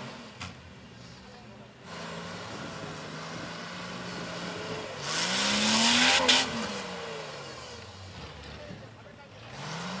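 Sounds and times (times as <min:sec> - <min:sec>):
engine revving: 0:01.8 - 0:08.7, 0:09.3 - 0:10.0.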